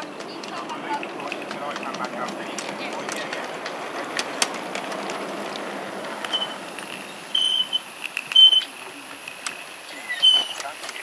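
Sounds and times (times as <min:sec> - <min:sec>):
miniature steam locomotive running: 0:00.0 - 0:11.0
loud high-pitched tone: 0:07.3 - 0:08.8
sharp clicks: 0:10.2 - 0:11.0.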